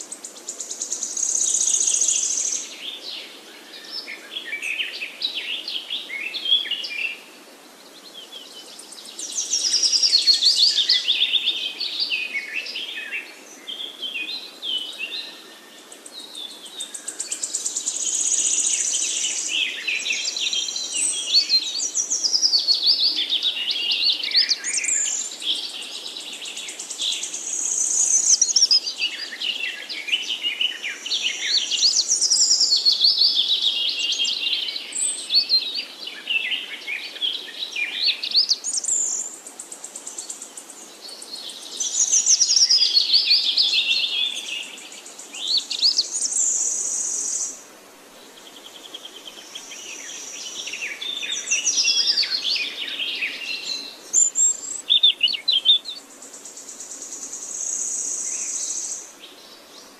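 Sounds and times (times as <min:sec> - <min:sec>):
songbird warbling: 0:48.6 - 0:59.1.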